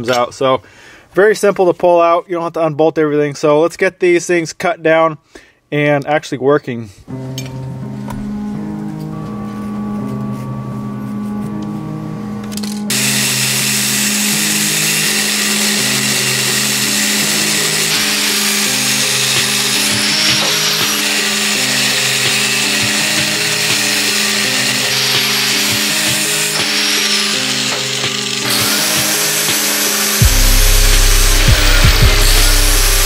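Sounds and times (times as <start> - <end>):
background music: 7.1 - 33.0
angle grinder cutting metal: 12.9 - 33.0.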